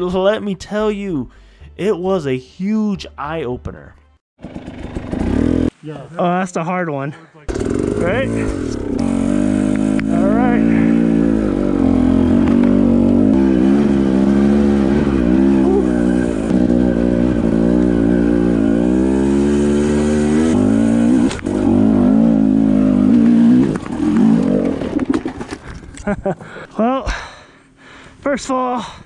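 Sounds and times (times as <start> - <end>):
dirt bike engine revving: 4.4 - 5.7, 7.5 - 25.5.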